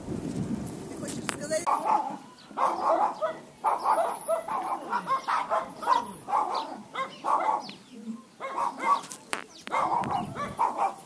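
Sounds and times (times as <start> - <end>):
dog barking: 1.7 - 7.8, 8.4 - 9.1, 9.7 - 11.0.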